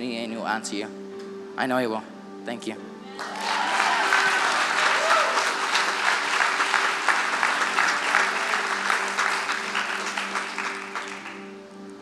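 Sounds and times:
steady held musical tone: 0.0 - 12.0
congregation applauding: 3.2 - 11.8.

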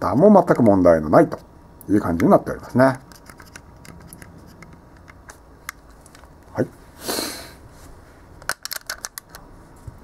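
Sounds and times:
camera clicks and metal handling: 3.1 - 6.2, 8.4 - 9.4.

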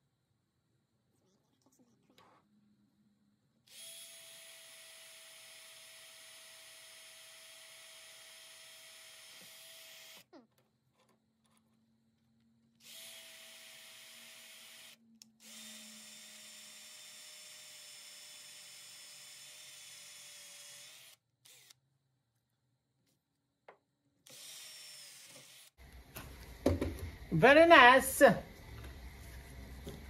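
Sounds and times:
drill whining: 3.7 - 10.4, 12.8 - 21.8, 24.3 - 25.8.

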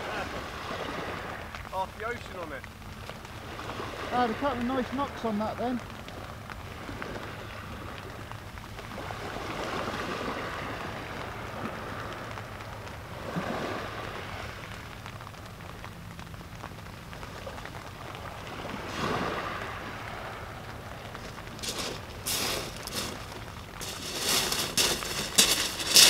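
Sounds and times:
rain: 0.0 - 26.0
sea waves on beach: 0.0 - 26.0.

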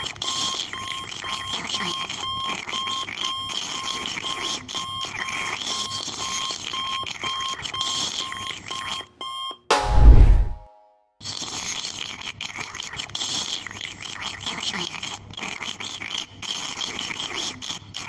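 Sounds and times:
loud bang with deep boom: 9.7 - 10.7.

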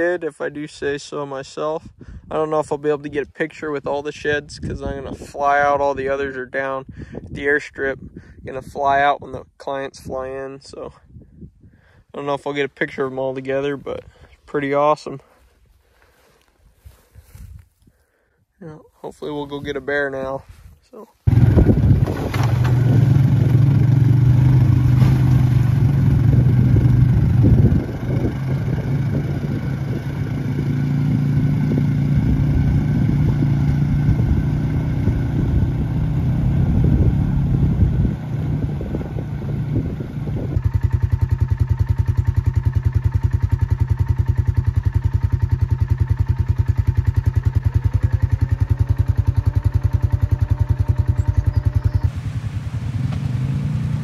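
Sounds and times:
engine running: 21.2 - 54.0.

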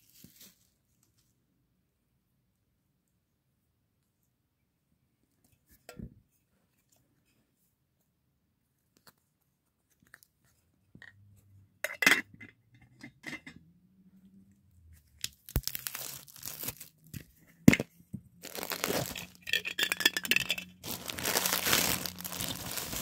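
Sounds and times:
scraping and crinkling: 15.2 - 23.0.

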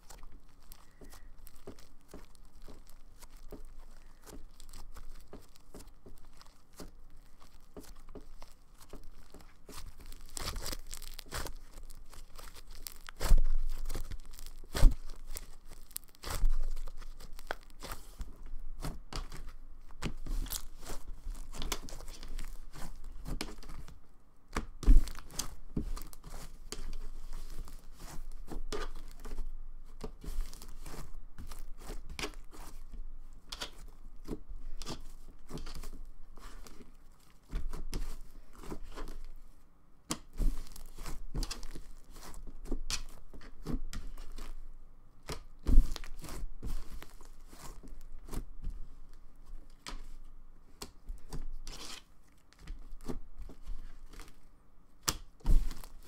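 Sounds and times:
slime squishing and crackling: 0.0 - 39.4, 40.1 - 44.6, 45.2 - 54.4, 55.0 - 56.0.

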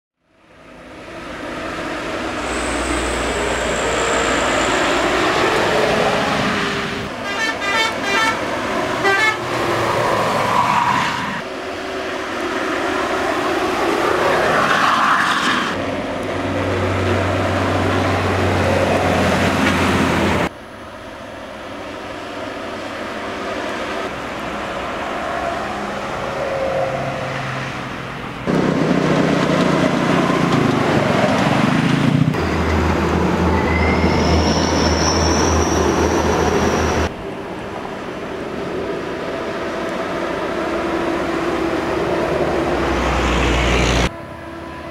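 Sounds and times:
buses passing at speed: 0.2 - 44.9
horns honking: 7.1 - 9.6.

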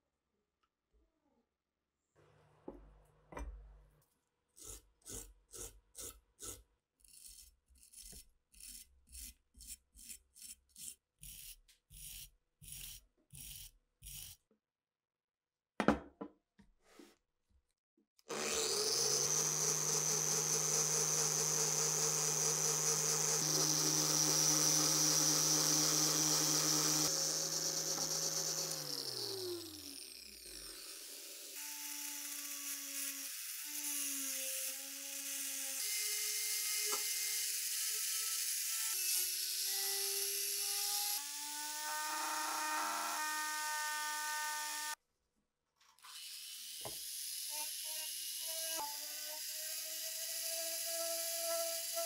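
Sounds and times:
rotary tool running: 18.3 - 33.1.

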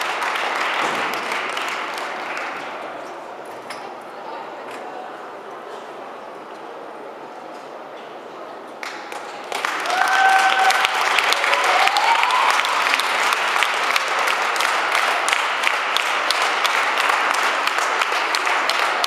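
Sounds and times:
audience applauding: 0.0 - 2.8, 8.8 - 19.0.

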